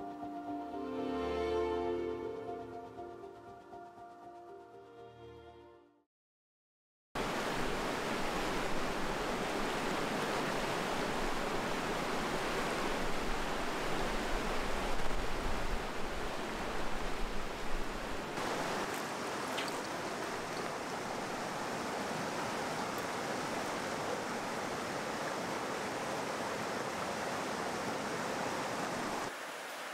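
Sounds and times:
stream rushing over rocks: 0:07.2 - 0:29.9.

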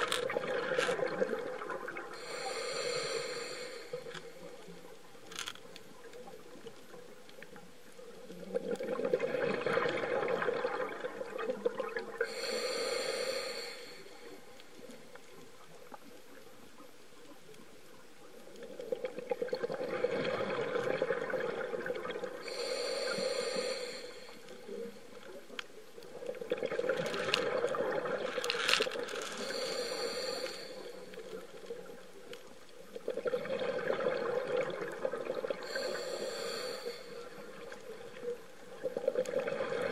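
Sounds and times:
hissing regulator inhalation: 0:02.2 - 0:04.4, 0:12.2 - 0:14.4, 0:22.4 - 0:24.6, 0:29.3 - 0:31.4, 0:35.6 - 0:37.7
bubbling underwater exhalation: 0:08.4 - 0:12.4, 0:18.8 - 0:22.8, 0:26.3 - 0:28.3, 0:33.0 - 0:36.6.

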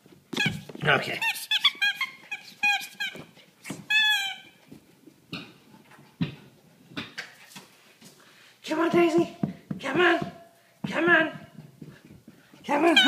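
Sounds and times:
squeaky toy squeaks: 0:00.4 - 0:04.6.

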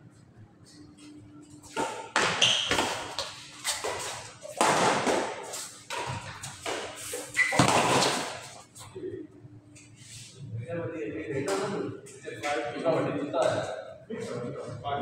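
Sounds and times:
rackets hitting shuttlecock: 0:01.7 - 0:08.5
shoes squeaking on court: 0:01.8 - 0:04.5, 0:05.5 - 0:08.8.

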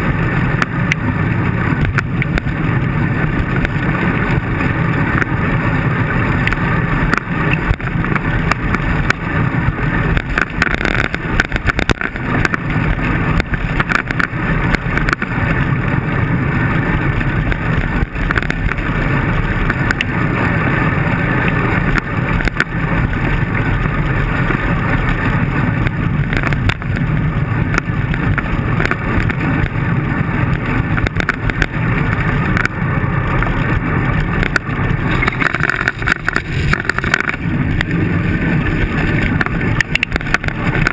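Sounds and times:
road and wind noise: 0:00.0 - 0:40.9
bike knocks and rattles: 0:06.5 - 0:15.4, 0:17.4 - 0:18.9, 0:25.8 - 0:29.8, 0:30.8 - 0:32.8, 0:34.4 - 0:37.9, 0:39.0 - 0:40.9.

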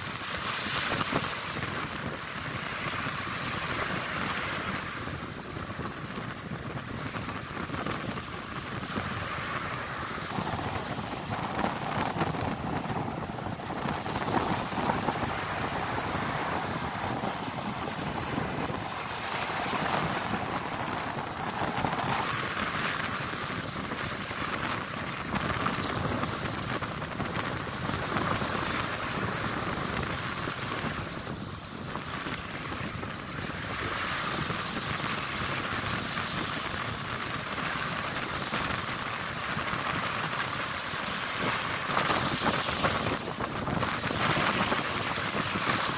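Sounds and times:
surf washing on sand: 0:00.0 - 0:45.9
wind buffeting microphone: 0:00.0 - 0:45.9.

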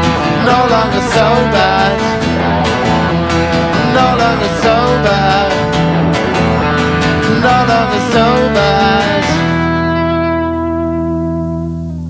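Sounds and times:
final guitar chord ringing: 0:00.0 - 0:12.0
rock band playing: 0:00.0 - 0:12.0.

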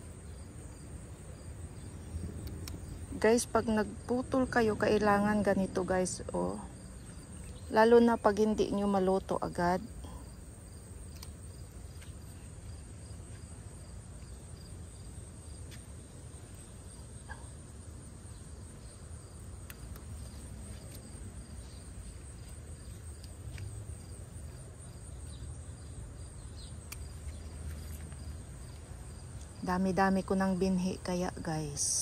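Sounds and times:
insects chirping trill: 0:00.0 - 0:32.0
faint sharp clicks: 0:02.4 - 0:02.8, 0:11.1 - 0:11.4, 0:19.6 - 0:20.1.

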